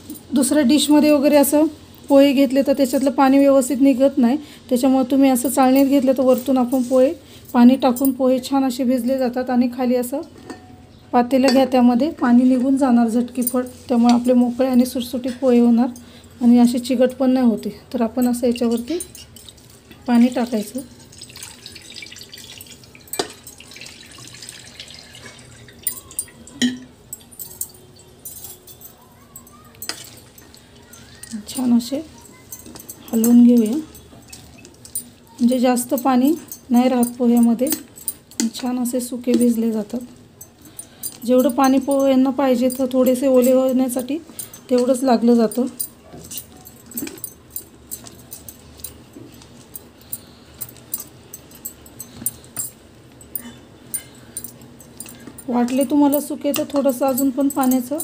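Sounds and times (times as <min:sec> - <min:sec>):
metallic clinks against colander: 0:04.8 - 0:58.0
water splashing through colander: 0:19.4 - 0:26.6.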